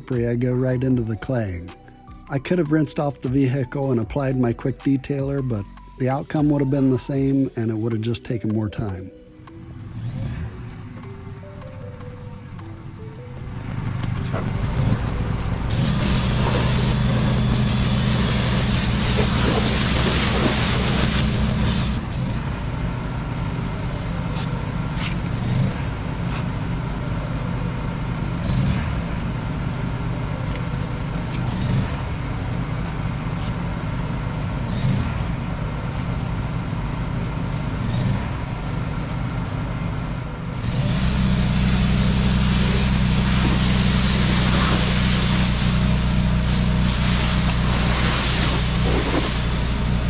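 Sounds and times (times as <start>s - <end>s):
motor humming: 8.8s - 50.0s
pressure washer spraying water: 15.4s - 22.3s, 40.6s - 50.0s.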